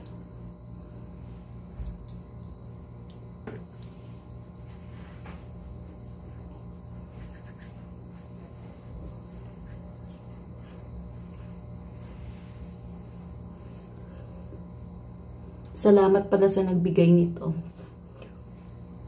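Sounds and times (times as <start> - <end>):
steady low hum: 0.0 - 19.0
hands rubbing wet skin: 3.6 - 14.1.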